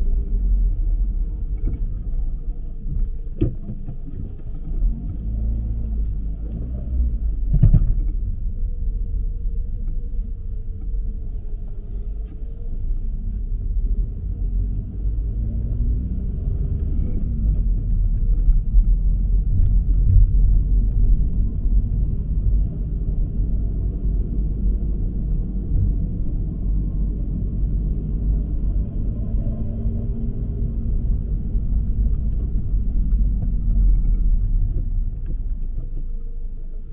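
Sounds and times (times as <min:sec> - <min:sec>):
car road and engine rumble: 0:00.0 - 0:36.9
thump: 0:07.5 - 0:08.1.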